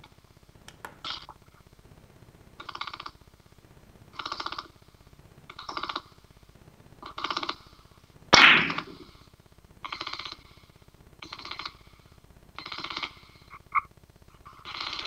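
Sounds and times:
cue striking billiard ball: 0:08.4 - 0:09.0.

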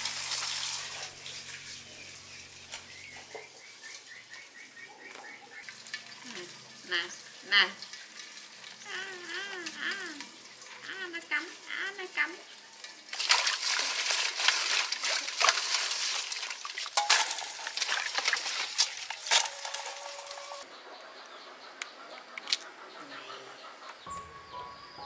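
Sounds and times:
water splashing in a pot: 0:00.0 - 0:04.3, 0:05.6 - 0:20.6.

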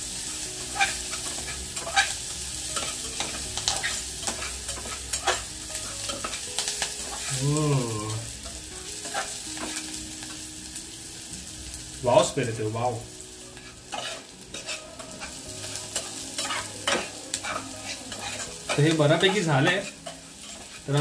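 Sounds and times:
food sizzling in a pot: 0:00.0 - 0:21.0
metal utensil scraping a pot: 0:13.6 - 0:21.0.

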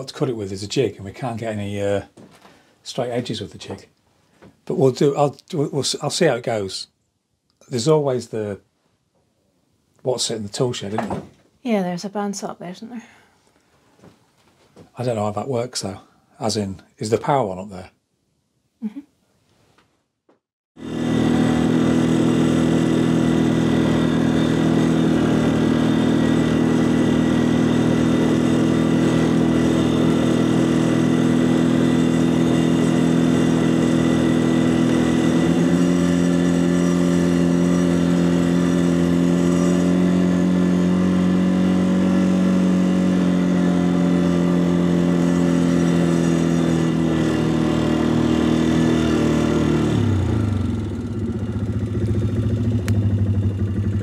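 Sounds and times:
quad bike engine running: 0:20.8 - 0:54.0.

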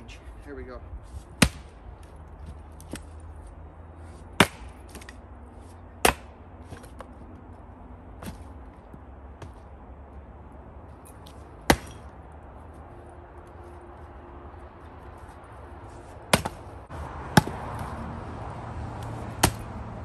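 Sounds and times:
axe striking wood: 0:01.3 - 0:01.8, 0:04.3 - 0:05.2, 0:06.0 - 0:07.1, 0:11.6 - 0:12.1, 0:16.3 - 0:16.7, 0:17.3 - 0:17.9, 0:19.3 - 0:19.7.

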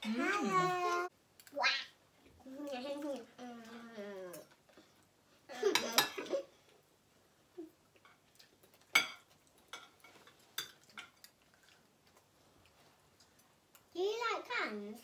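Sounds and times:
cutlery clinking on plates: 0:05.6 - 0:06.4, 0:08.0 - 0:11.4.

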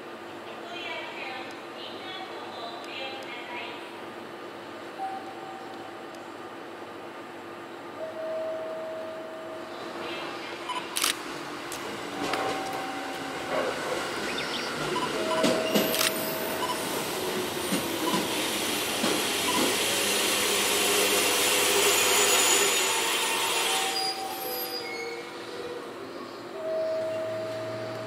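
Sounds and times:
electric train passing: 0:07.9 - 0:28.0
wheels hissing on rail: 0:15.8 - 0:26.5.

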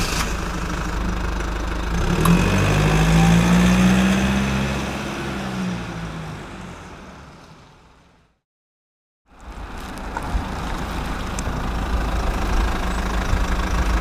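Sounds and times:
car engine running: 0:00.0 - 0:04.6, 0:09.8 - 0:14.0
tyre and road noise: 0:00.0 - 0:08.4, 0:09.3 - 0:14.0.

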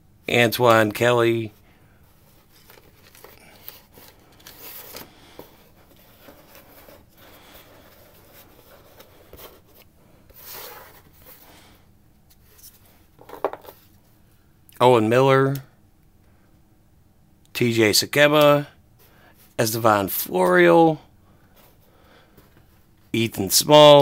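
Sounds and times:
cards rustling and clicking: 0:02.2 - 0:11.5.

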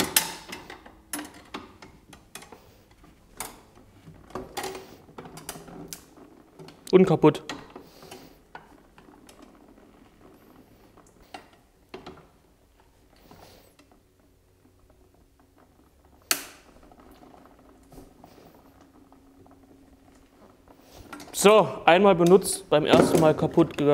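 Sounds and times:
paper press creaking and rattling: 0:00.0 - 0:23.9.

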